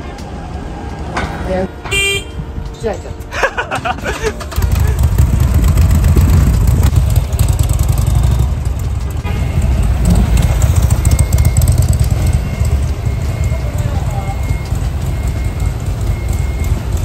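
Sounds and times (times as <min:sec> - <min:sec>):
motorcycle engine running: 0:04.3 - 0:17.0.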